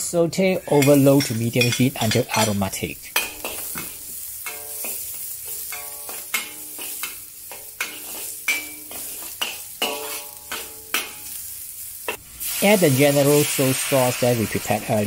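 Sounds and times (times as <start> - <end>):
food sizzling in oil in a wok: 0.6 - 15.0
metal spatula scraping a wok: 0.7 - 12.6.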